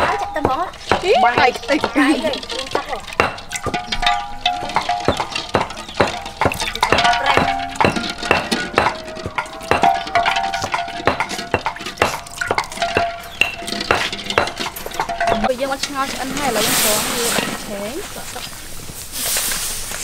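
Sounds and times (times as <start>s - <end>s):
eggs knocking against metal wok: 0.0s - 15.5s.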